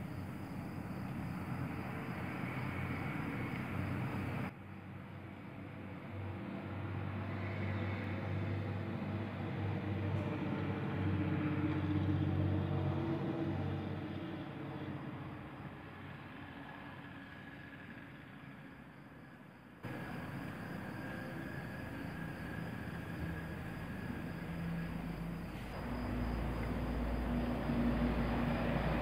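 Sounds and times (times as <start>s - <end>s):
engine low rumble: 19.8s - 29.0s
high hiss: 19.8s - 29.0s.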